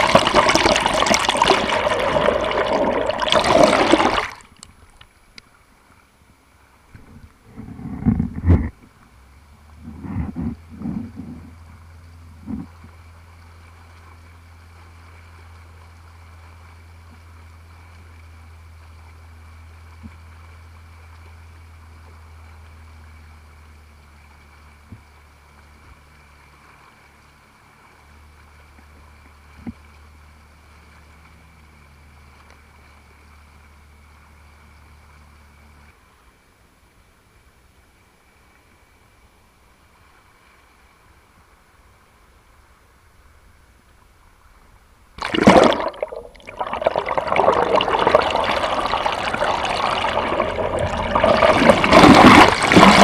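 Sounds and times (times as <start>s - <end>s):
jet ski engine drone: 7.0s - 39.8s.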